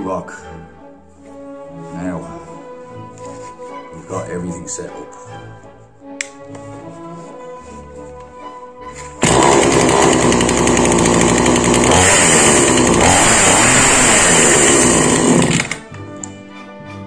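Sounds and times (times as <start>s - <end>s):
chainsaw running: 9.2s - 15.9s.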